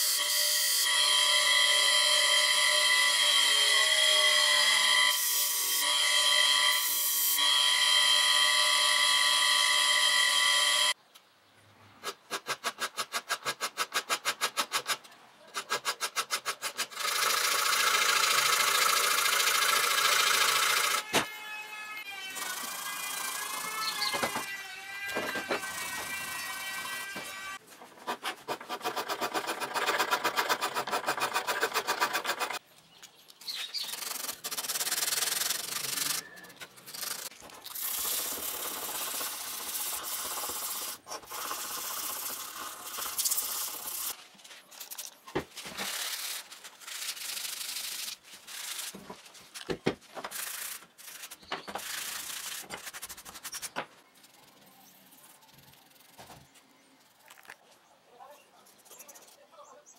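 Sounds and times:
sandpaper rubbing on wood: 26.6 - 32.6, 33.8 - 44.2, 45.6 - 49.2, 50.2 - 56.4.

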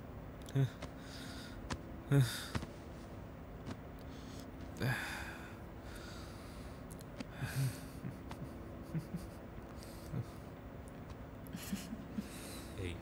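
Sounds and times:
faint steady hum: 0.0 - 13.0
man breathing heavily: 0.5 - 3.0, 4.0 - 8.4, 9.7 - 10.5, 11.6 - 13.0.

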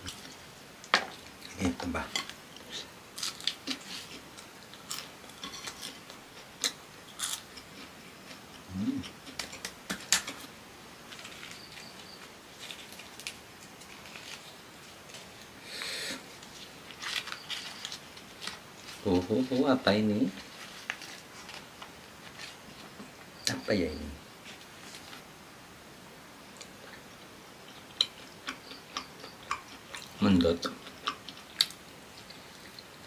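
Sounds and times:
crunchy chewing: 1.1 - 10.5, 11.1 - 19.6, 20.2 - 23.6, 26.6 - 33.0
leaf wrapper rustling: 9.3 - 15.6, 16.3 - 23.1, 24.4 - 25.3.

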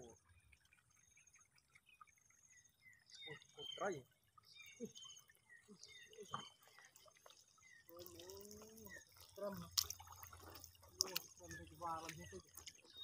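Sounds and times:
water trickling over rocks: 0.0 - 13.0.

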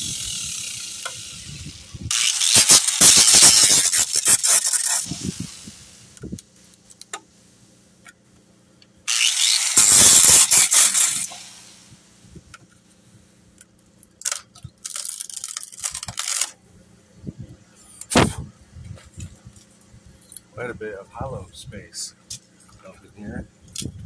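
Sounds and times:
rough rubbing and scraping: 0.0 - 6.8, 9.1 - 11.7, 14.2 - 16.6.

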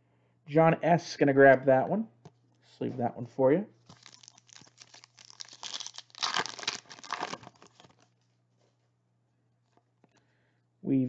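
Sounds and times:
plastic sleeve crinkling: 3.8 - 8.2.

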